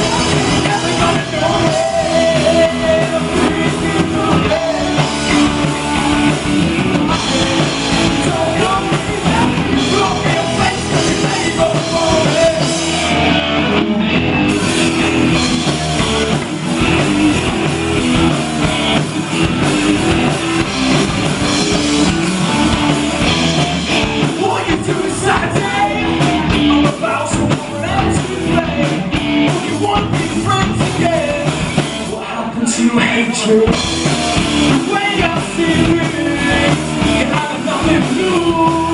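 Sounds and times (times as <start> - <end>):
drum kit: 0.0 - 38.9
rock band playing live: 0.0 - 38.9.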